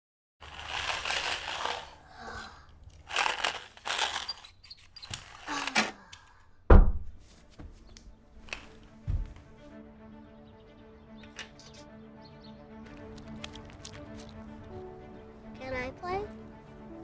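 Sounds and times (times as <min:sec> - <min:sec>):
toy race cars whizzing: 0:00.4 - 0:06.0
deep thump: 0:06.7 - 0:07.2.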